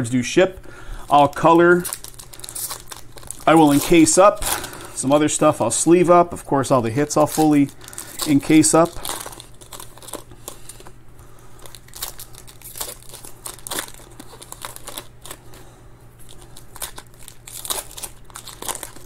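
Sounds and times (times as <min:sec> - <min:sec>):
foil wrapper crinkling and tearing: 0:01.1 - 0:05.4, 0:06.9 - 0:10.9, 0:11.6 - 0:15.6, 0:16.2 - 0:19.0.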